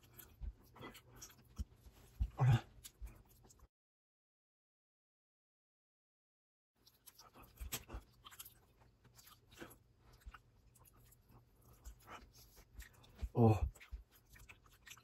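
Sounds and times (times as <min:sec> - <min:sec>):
chewing chocolate: 0:00.0 - 0:03.7, 0:06.8 - 0:15.0
wet mouth smacks: 0:07.2 - 0:08.5.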